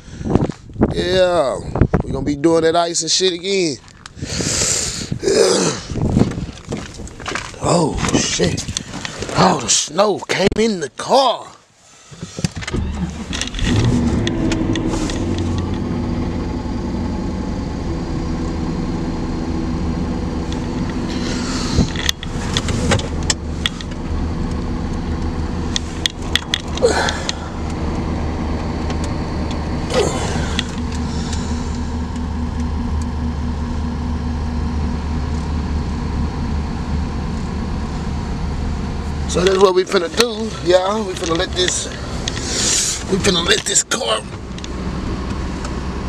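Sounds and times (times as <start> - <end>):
car engine idling: 11.8 - 46.0.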